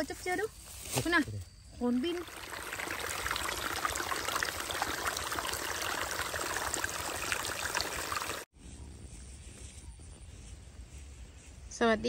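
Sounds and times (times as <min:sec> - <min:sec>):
water rushing and splashing: 0:02.0 - 0:08.5.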